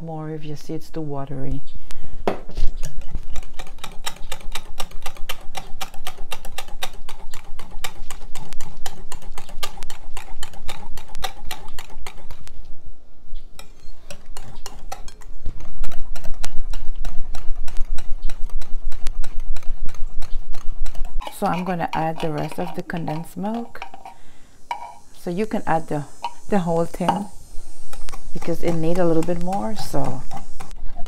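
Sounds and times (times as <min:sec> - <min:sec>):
utensil beating batter in glass bowl: 0:02.8 - 0:12.4, 0:13.6 - 0:31.0.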